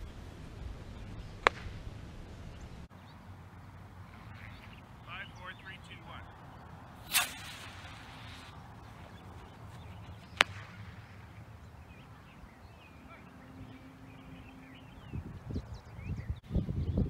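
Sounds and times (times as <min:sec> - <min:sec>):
ejection charge crack: 0:07.0 - 0:08.6
model rocket motor pop and hiss: 0:07.1 - 0:08.5.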